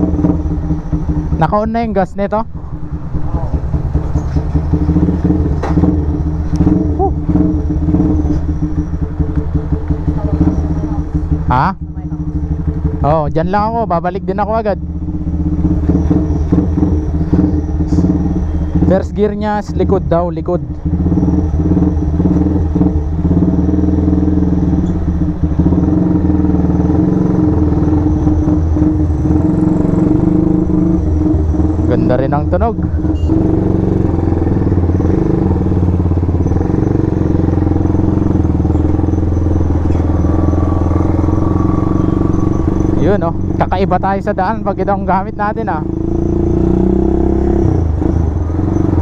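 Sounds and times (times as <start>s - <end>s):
motorcycle engine idling: 0.0s - 49.0s.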